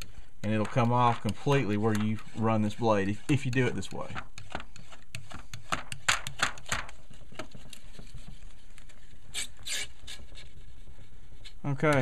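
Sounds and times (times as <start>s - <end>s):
razor scraper scraping wet glass: 9.3s - 10.2s.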